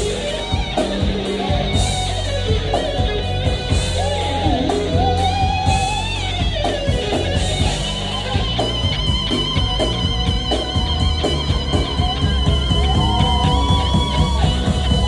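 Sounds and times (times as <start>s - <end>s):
electric guitar bending notes: 0.0s - 15.0s
live band music: 0.0s - 15.0s.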